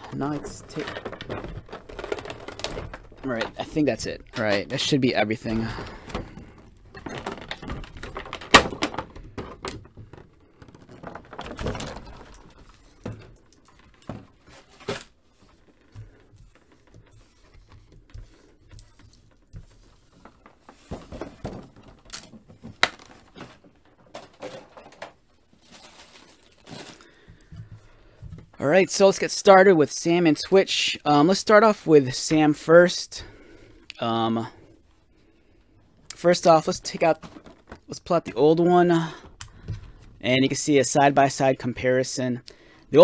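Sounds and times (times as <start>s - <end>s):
plastic tray crinkling: 0.0s - 27.6s.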